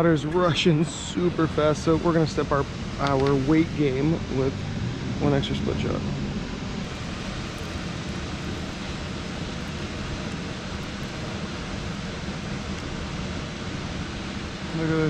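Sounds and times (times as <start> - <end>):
fast-flowing river rushing: 6.8 - 14.9.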